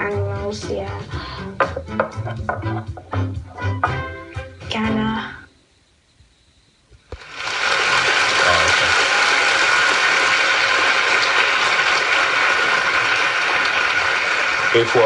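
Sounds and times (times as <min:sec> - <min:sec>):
audience applauding: 0:07.2 - 0:15.0.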